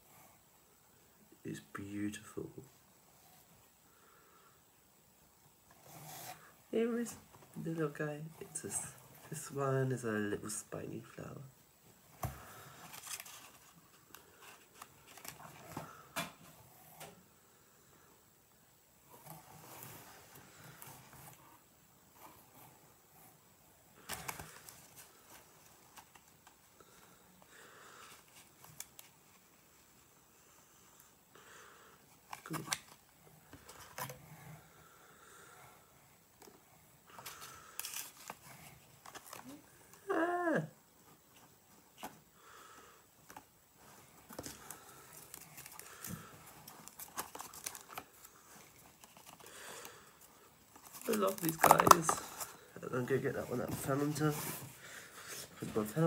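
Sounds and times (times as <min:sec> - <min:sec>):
faint handling rustles: 0:11.9 - 0:17.3, 0:36.4 - 0:40.0, 0:40.9 - 0:56.0
packaging crinkling: 0:44.3 - 0:50.1, 0:50.7 - 0:52.7.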